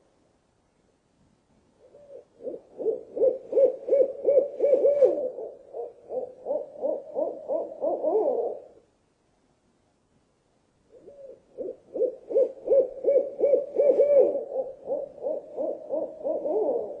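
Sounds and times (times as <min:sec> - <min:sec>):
owl hooting: 0:01.8 - 0:08.8, 0:10.9 - 0:17.0.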